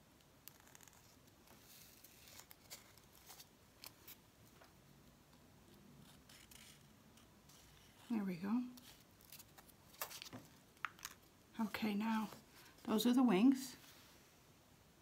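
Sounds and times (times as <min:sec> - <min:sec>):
pencil scratching on gourd: 0:06.0 - 0:08.2.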